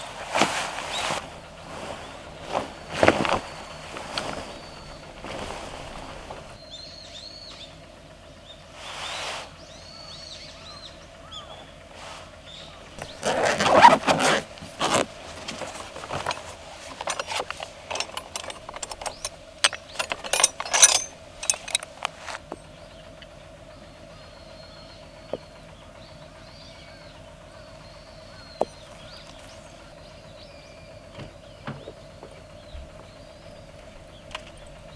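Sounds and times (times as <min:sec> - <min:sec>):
gear case rustling: 0:00.0 - 0:06.6, 0:13.0 - 0:22.6, 0:28.5 - 0:29.9
birds chirping: 0:00.0 - 0:34.9
faint hum: 0:00.0 - 0:34.9
tools clicking and clinking: 0:13.2 - 0:22.4.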